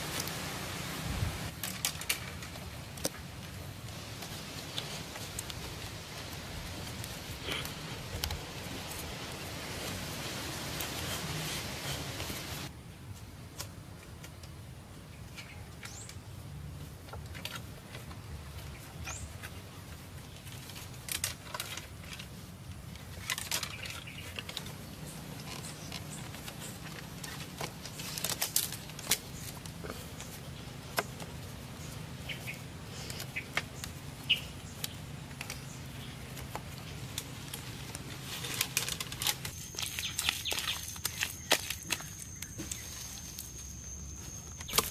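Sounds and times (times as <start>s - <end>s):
bamboo poles knocking and rattling: 1.5s - 9.9s, 16.9s - 43.6s.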